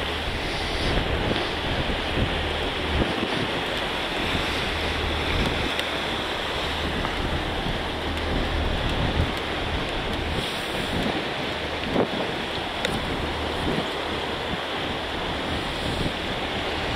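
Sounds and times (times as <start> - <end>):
low hum: 0.0 - 12.0
waves slapping and splashing: 0.0 - 16.9
wind buffeting microphone: 0.0 - 16.9.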